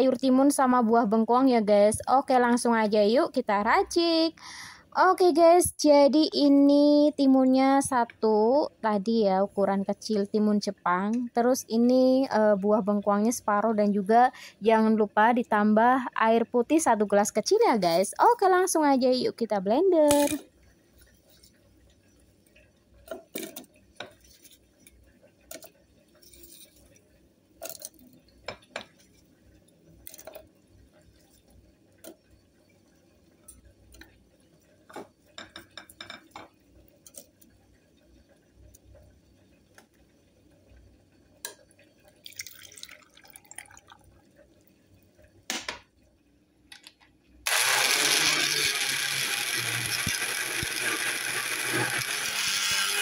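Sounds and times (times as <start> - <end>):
water pouring: 42.1 - 44.3
electric blender running: 47.5 - 53.0.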